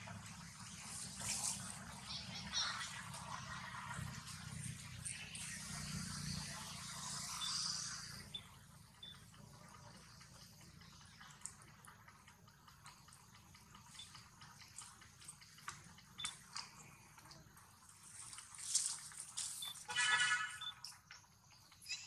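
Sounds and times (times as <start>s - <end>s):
low steady hum: 0.0s - 22.0s
clicks and crackles in dry leaves: 17.8s - 19.9s.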